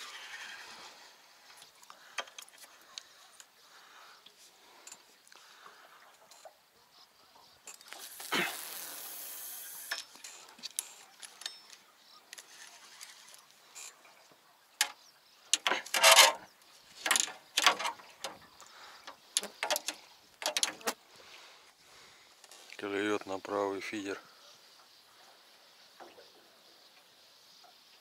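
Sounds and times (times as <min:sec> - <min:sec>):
steady hiss: 0:07.7 - 0:11.1.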